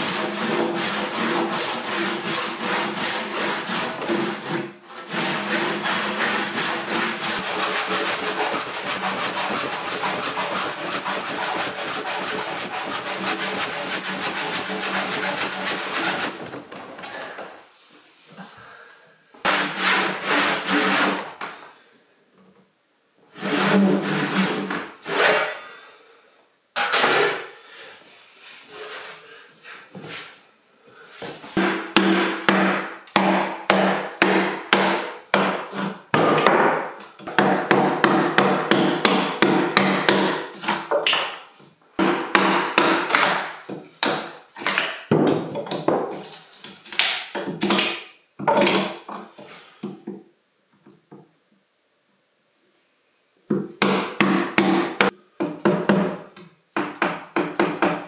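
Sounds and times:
mallet striking chisel into log: 0:31.6 - 0:35.6.

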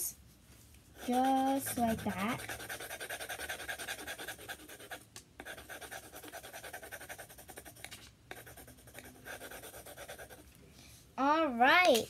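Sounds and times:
pencil scratching on paper: 0:01.0 - 0:10.4.

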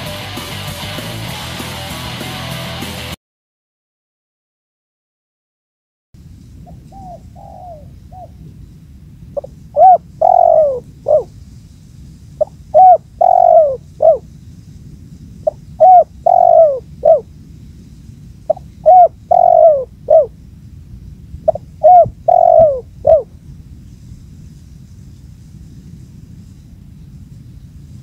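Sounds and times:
dove cooing: 0:06.7 - 0:08.6, 0:09.4 - 0:11.3, 0:12.4 - 0:14.3, 0:15.4 - 0:17.3, 0:18.5 - 0:20.4, 0:21.4 - 0:23.4.

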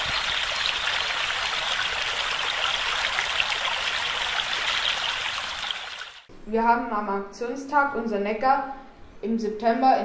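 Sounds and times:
small water splashes: 0:00.0 - 0:06.3
stream running over stones: 0:00.0 - 0:06.3.

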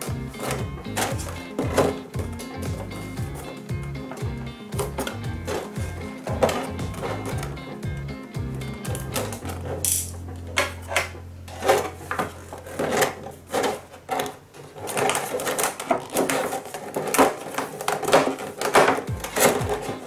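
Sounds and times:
plastic packaging crinkling: 0:09.0 - 0:20.0.

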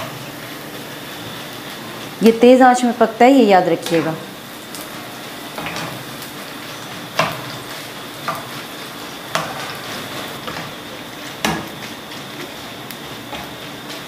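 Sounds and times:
hot oil sizzling: 0:00.0 - 0:14.0.

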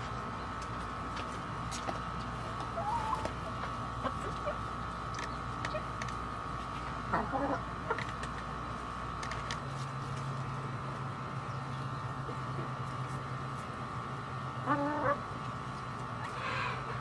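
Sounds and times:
mechanical hum: 0:00.0 - 0:17.0
hens pecking clicks: 0:00.6 - 0:08.5.

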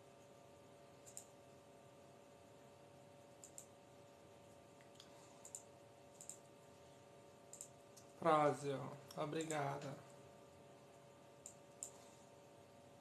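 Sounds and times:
faint steady hum: 0:00.0 - 0:13.0
soft clicks: 0:01.0 - 0:01.3, 0:03.4 - 0:03.8, 0:04.8 - 0:06.4, 0:07.5 - 0:08.2, 0:11.4 - 0:12.0.

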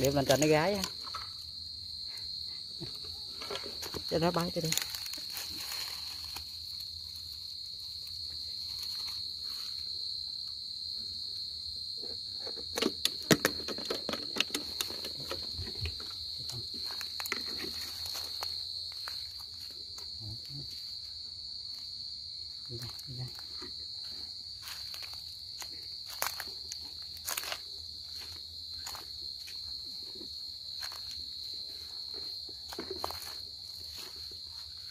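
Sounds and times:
crickets singing: 0:00.0 - 0:34.9.

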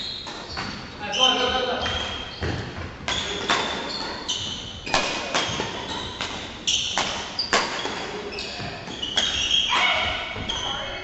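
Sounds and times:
shoes squeaking on wooden floor: 0:00.0 - 0:11.0
rackets hitting shuttlecock: 0:01.8 - 0:10.3.

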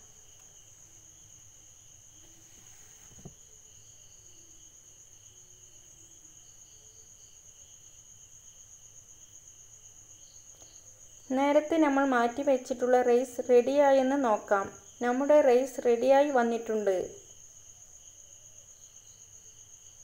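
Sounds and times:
faint insect trill: 0:00.0 - 0:20.0.

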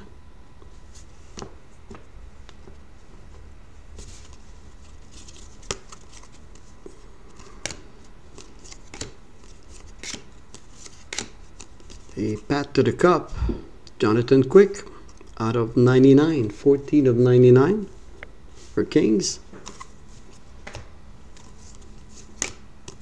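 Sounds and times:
cards rustling and sliding: 0:03.9 - 0:12.5, 0:19.5 - 0:23.0.

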